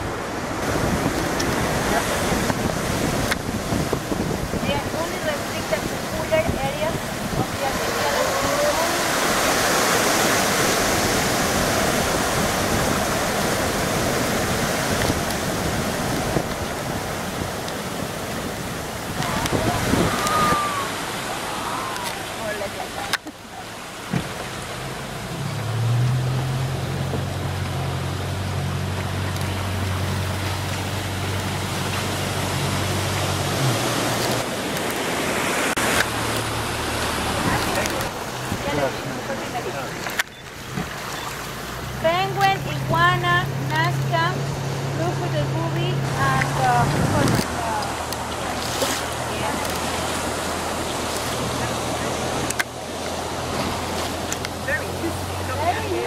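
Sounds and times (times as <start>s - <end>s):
wind noise: 0.0s - 22.4s, 41.9s - 56.0s
boat engine humming: 0.0s - 56.0s
surf breaking against rocky shore: 0.0s - 56.0s.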